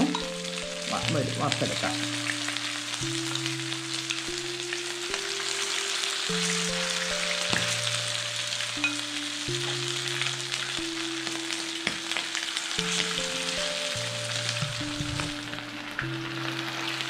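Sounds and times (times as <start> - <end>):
oil sizzling and crackling: 0.0 - 17.0
soft background music: 0.0 - 17.0.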